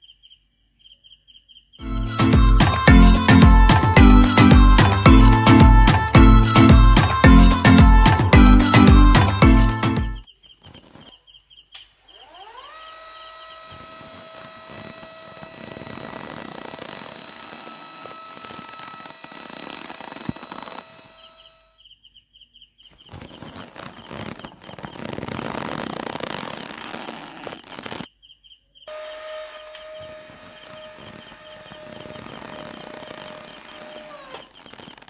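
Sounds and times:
small motor whining: 12.2 - 21.7, 28.9 - 35.0.

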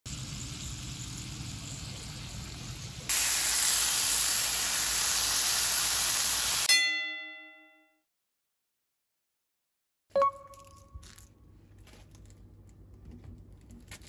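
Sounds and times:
food sizzling on hot plate: 0.1 - 6.7
bell-like ding: 6.7 - 8.0, 10.2 - 11.0.

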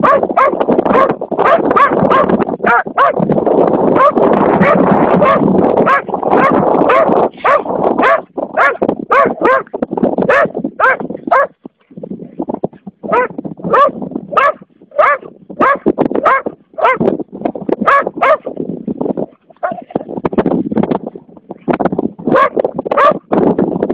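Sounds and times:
dog barking: 0.0 - 3.2, 4.0 - 9.7, 10.3 - 11.6, 13.1 - 17.0, 17.8 - 18.5, 19.6 - 19.9, 22.3 - 23.2.

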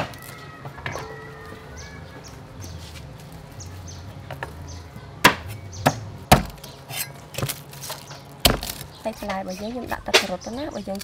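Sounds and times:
knife chopping on wooden board: 5.2 - 6.6.

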